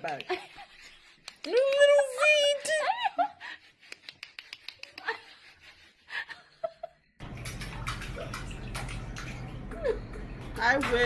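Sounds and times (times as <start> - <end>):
water running in sink: 7.2 - 11.0.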